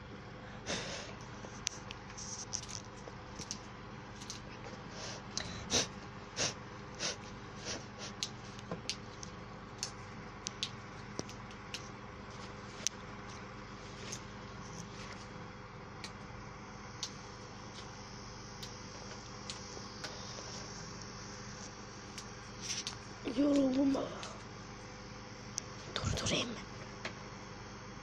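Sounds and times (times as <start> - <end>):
faint steady hum: 0.0 - 28.0
roses rustling and snapping: 1.6 - 4.6, 8.2 - 13.4.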